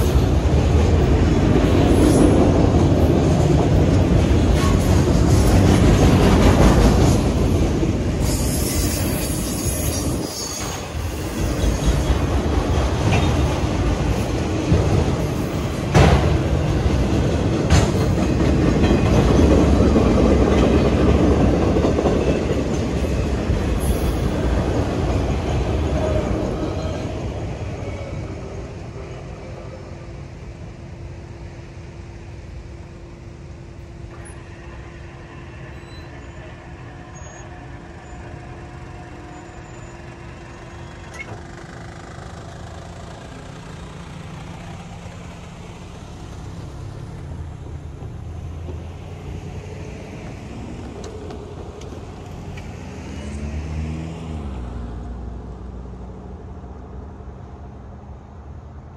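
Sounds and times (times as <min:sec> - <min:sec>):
low road and rail rumble: 0:00.0 - 0:58.9.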